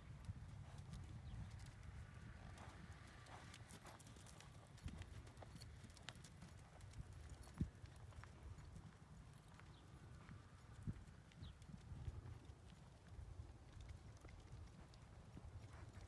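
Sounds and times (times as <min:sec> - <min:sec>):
horse hoofbeats on sand: 0:00.3 - 0:12.3.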